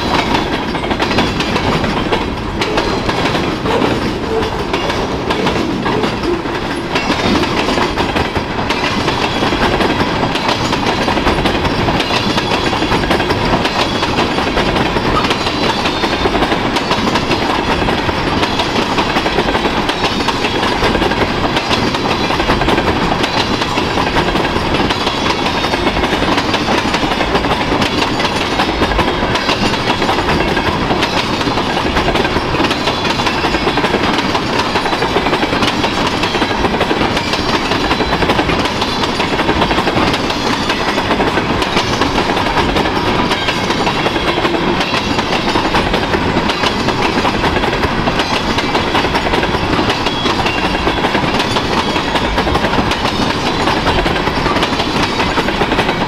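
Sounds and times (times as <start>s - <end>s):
train cars clicking and clacking: 0.0s - 56.0s
train wheels rolling on rail: 0.0s - 56.0s.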